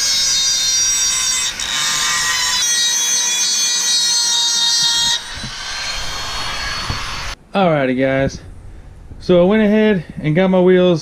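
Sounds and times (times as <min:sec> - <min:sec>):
rotary tool grinding whine: 0:00.0 - 0:07.4.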